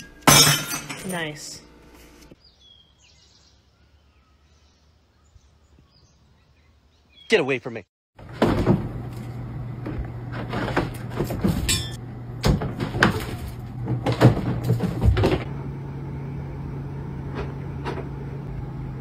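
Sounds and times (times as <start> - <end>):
litter box motor hum: 8.2 - 19.0
knocks and thumps: 12.4 - 15.5.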